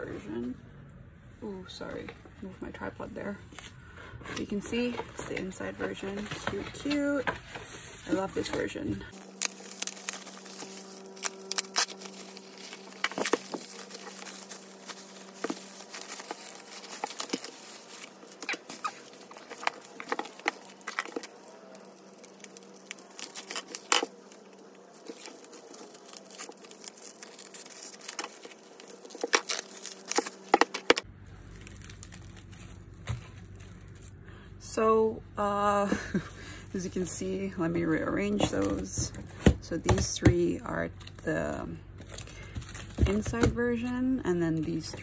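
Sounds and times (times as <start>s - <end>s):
faint steady hum: 0.0s - 45.0s
bubble wrap crinkling: 5.8s - 34.2s, 41.0s - 45.0s.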